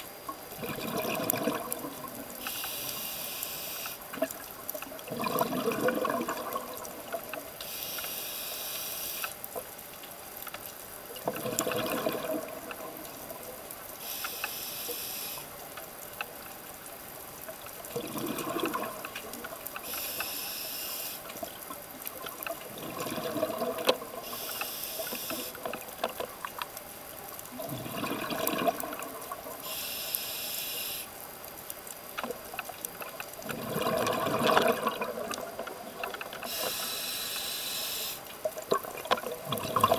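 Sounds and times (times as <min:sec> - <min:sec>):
bubbling gurgling exhale: 0:00.6 - 0:02.5, 0:05.0 - 0:07.3, 0:11.2 - 0:13.4, 0:17.9 - 0:19.7, 0:22.4 - 0:25.9, 0:27.5 - 0:29.8, 0:33.4 - 0:37.0, 0:38.6 - 0:39.9
hissing regulator inhale: 0:02.4 - 0:04.0, 0:07.6 - 0:09.4, 0:14.0 - 0:15.5, 0:19.8 - 0:21.3, 0:24.2 - 0:25.6, 0:29.6 - 0:31.1, 0:36.4 - 0:38.2.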